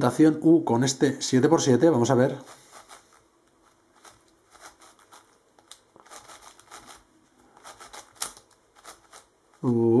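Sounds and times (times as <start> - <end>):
speed cube plastic clicks: 7.6 - 9.2.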